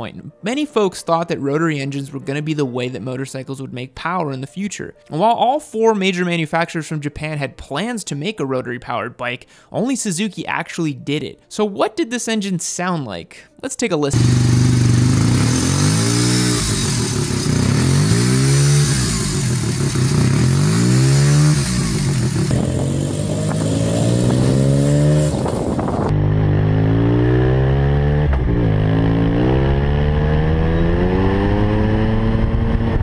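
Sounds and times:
engine revving: 14.2 - 33.0.

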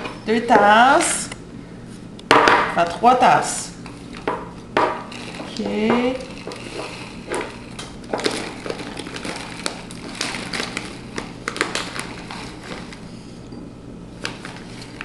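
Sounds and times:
paper bag crinkling: 3.8 - 13.2, 14.1 - 15.0
flour pouring into glass cup: 5.0 - 12.9.

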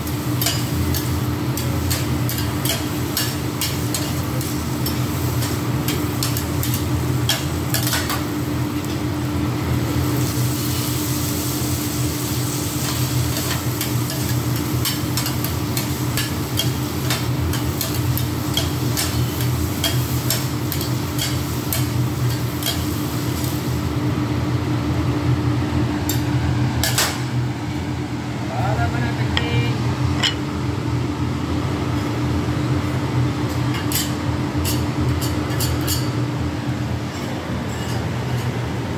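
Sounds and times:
food sizzling: 0.0 - 24.1
metal spatulas scraping griddle: 37.1 - 38.5.

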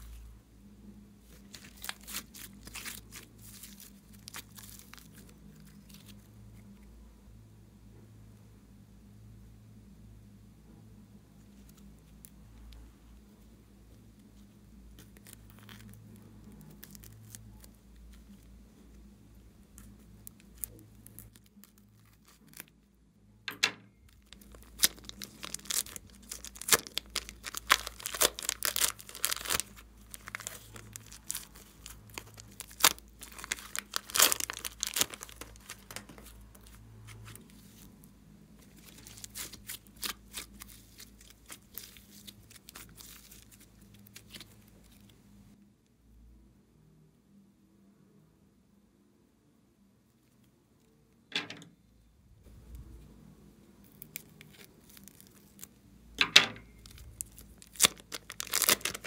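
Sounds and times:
plastic bags crinkling and tearing: 1.3 - 6.3, 14.9 - 18.5, 19.7 - 22.8, 24.1 - 37.9, 38.6 - 45.1, 53.8 - 59.0.

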